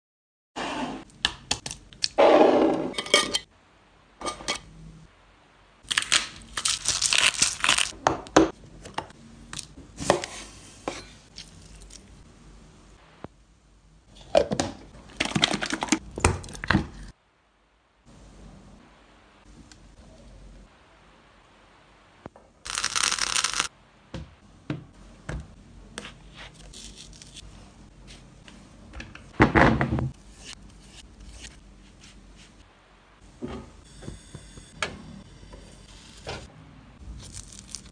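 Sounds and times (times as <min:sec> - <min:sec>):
pepper grinder crunching: 0:22.7 - 0:23.7.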